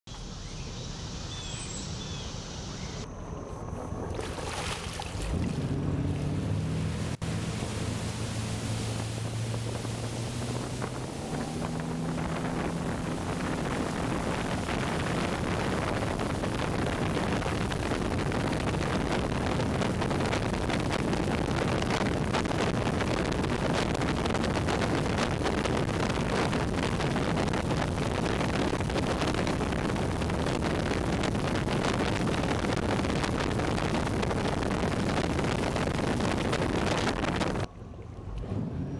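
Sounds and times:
boat engine accelerating: 1.4 - 38.9
wind on microphone: 3.7 - 37.7
rush of spray: 6.1 - 37.7.

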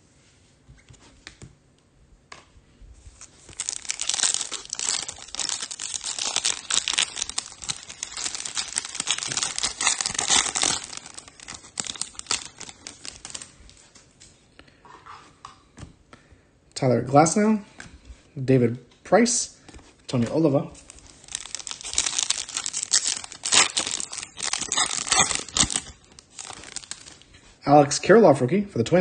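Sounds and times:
foil wrapper tearing and crinkling: 3.2 - 13.5, 20.8 - 27.3.

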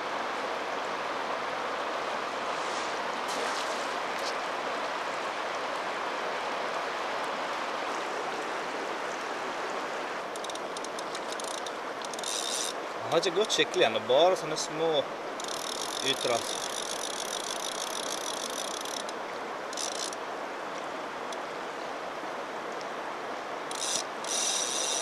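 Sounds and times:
river water rushing: 0.0 - 25.0
fishing reel drag ratcheting: 10.4 - 12.8, 15.4 - 20.2, 23.7 - 25.0.

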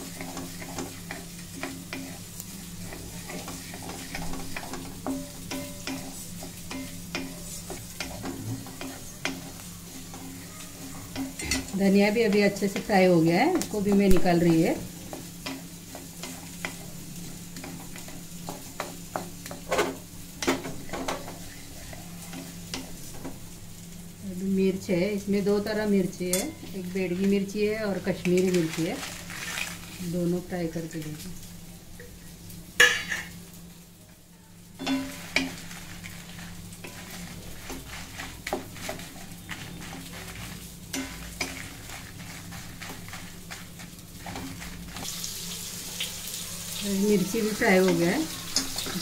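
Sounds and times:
spatula scraping metal pan: 0.0 - 2.2, 34.8 - 45.1
spatula scraping in a pan: 0.0 - 23.4, 34.8 - 49.0
light sizzle: 0.0 - 49.0
seeds rattling: 28.2 - 30.2, 35.0 - 45.2.

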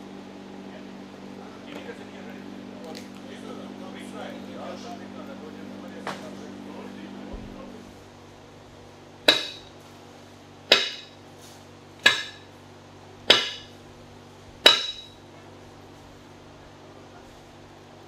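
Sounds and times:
metal spit clanking: 14.6 - 15.2.

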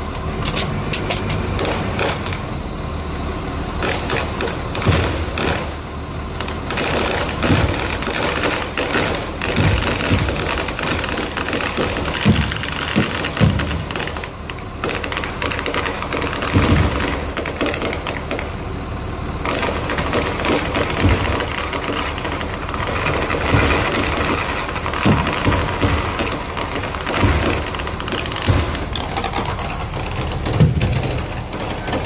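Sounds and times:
firecrackers crackling: 0.0 - 32.0
deep fireworks booms: 3.8 - 32.0.

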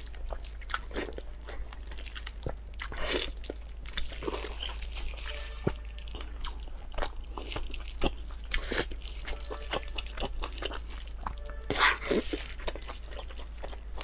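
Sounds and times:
wet chewing and mouth smacks: 0.0 - 14.0
low hum: 3.4 - 14.0.

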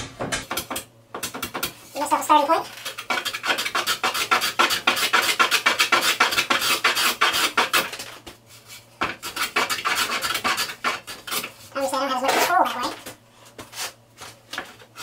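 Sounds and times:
hand plane scraping wood: 2.7 - 8.0, 9.2 - 11.6, 13.6 - 15.0.

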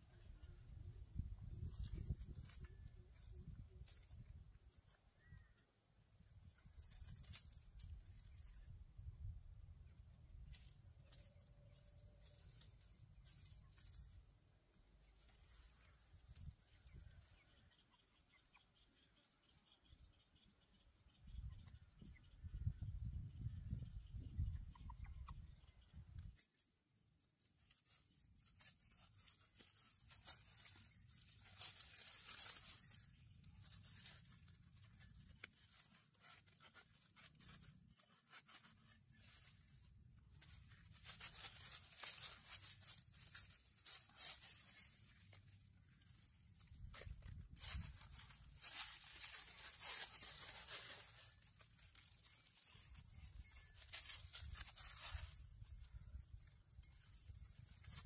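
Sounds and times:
rustling in leaves: 0.1 - 5.6, 6.2 - 17.9, 25.2 - 58.0.

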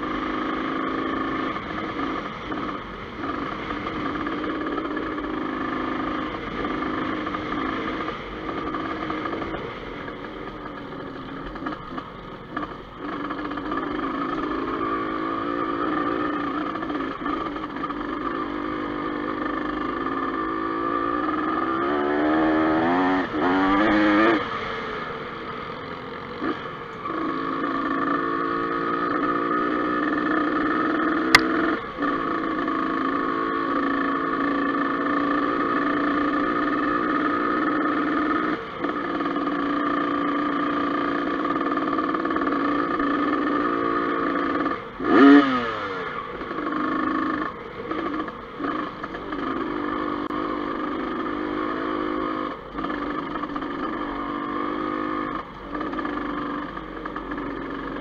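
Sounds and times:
dirt bike engine running: 0.0 - 58.0
sharp click: 31.3 - 31.6.

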